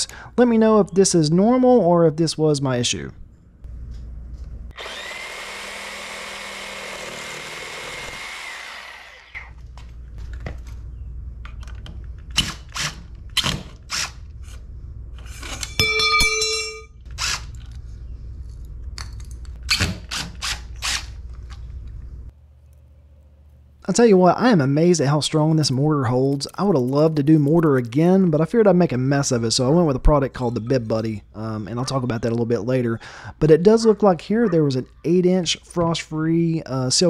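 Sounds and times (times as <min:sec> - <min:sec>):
cordless drill whining: 0:04.7 - 0:09.5
reciprocating saw cutting pipe: 0:04.7 - 0:09.5.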